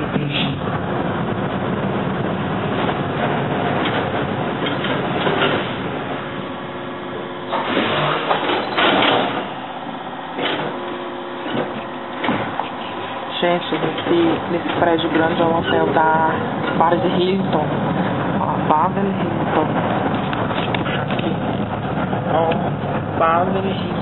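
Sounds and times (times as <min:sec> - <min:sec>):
tram running noise: 0:00.0 - 0:24.0
clatters and knocks: 0:02.2 - 0:06.4, 0:07.5 - 0:09.6, 0:10.3 - 0:15.8, 0:19.8 - 0:23.1.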